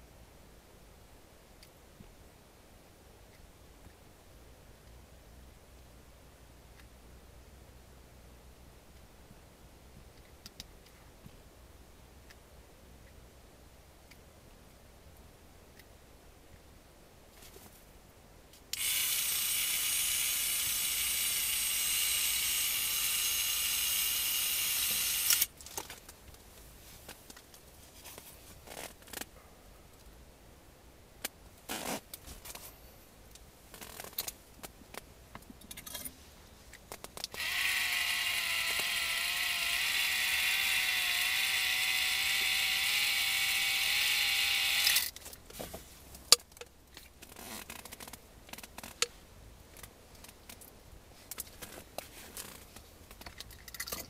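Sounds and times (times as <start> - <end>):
electric reel motor whirring: 18.8 - 25.5, 37.4 - 45.1.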